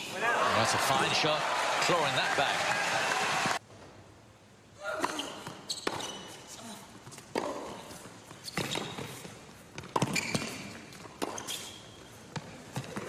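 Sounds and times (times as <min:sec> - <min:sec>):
ball bouncing on hard court: 0:08.4 - 0:11.6, 0:12.3 - 0:13.0
rackets striking tennis ball: 0:09.8 - 0:11.6.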